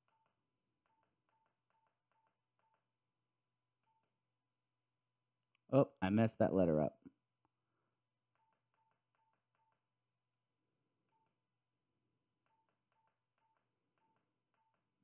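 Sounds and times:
keypad beeps with clicks: 0.0s - 2.9s, 3.8s - 4.2s, 8.4s - 9.9s, 11.0s - 11.4s, 12.4s - 15.0s.

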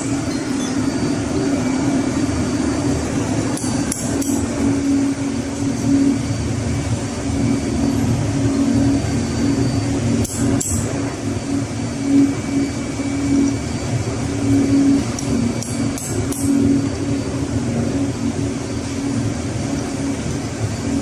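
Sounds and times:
engine-room machinery drone: 0.0s - 21.0s
hammer tapping metal: 3.6s - 4.4s.

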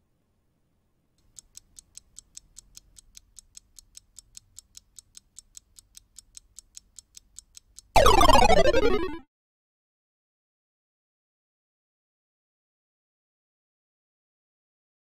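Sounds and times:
clock-like ticking: 1.2s - 9.2s
tones sliding down in pitch: 8.0s - 9.2s.

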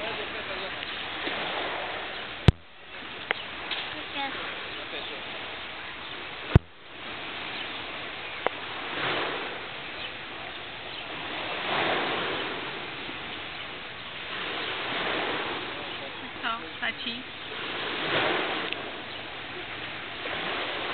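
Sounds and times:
waves washing onto pebble beach: 0.0s - 20.9s.

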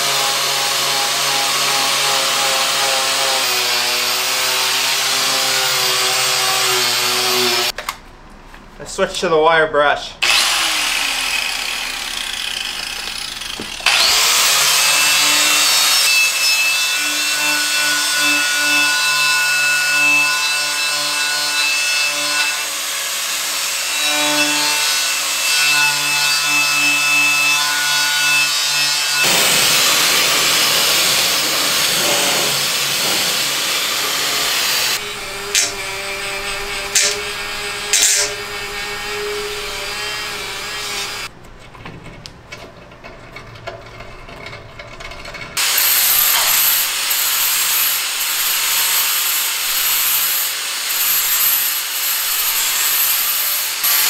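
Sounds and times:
small rotary tool wire brush: 28.4s - 41.3s, 45.6s - 54.0s
angle grinder wire brush on metal: 28.5s - 41.3s, 43.9s - 54.0s.

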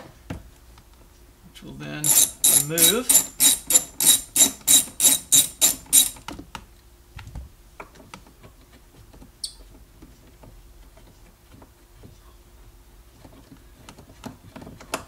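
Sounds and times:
short high squeak: 2.0s - 6.2s
socket ratchet clicking: 2.0s - 6.2s.

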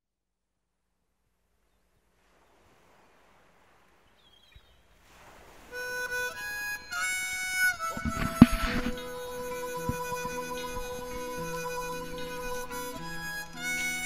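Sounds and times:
sustained reed instrument notes: 5.7s - 14.0s.

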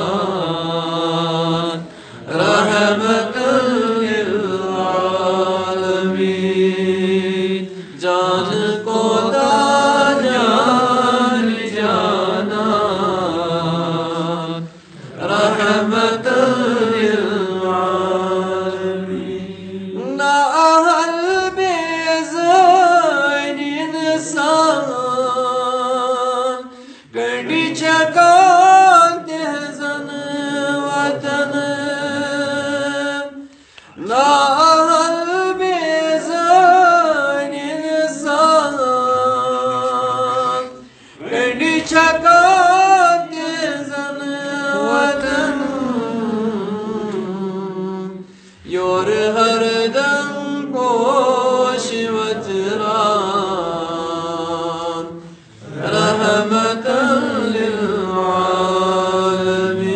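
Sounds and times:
breaths between phrases: 1.8s - 2.3s, 7.7s - 8.0s, 26.7s - 27.2s, 33.4s - 34.0s, 40.8s - 41.2s, 48.2s - 48.7s, 55.2s - 55.7s.

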